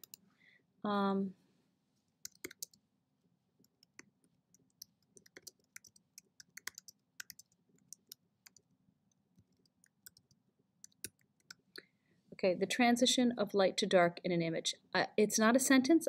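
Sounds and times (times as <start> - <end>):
keyboard typing: 0.0 - 0.2, 2.2 - 2.8, 3.6 - 8.7, 9.4 - 11.6.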